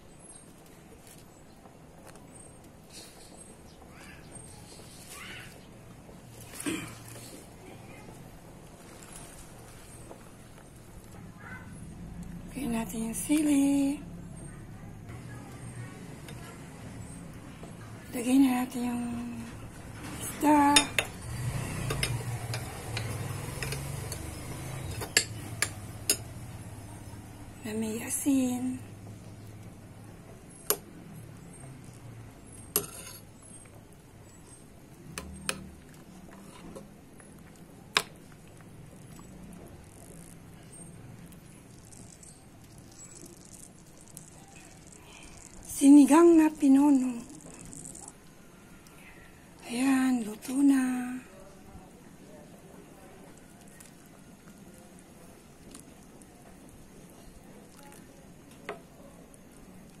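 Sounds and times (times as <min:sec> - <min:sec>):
broth bubbling: 0:37.0 - 0:46.2.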